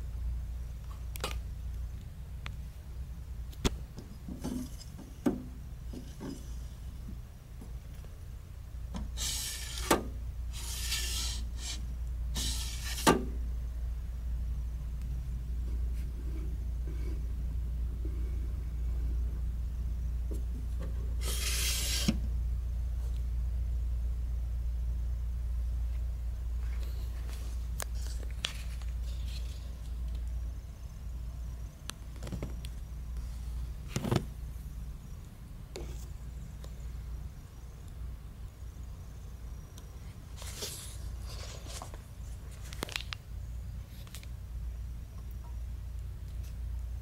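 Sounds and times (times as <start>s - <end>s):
steady low hum: 0.0s - 47.0s
sliding glass door swish and click: 12.4s - 13.3s.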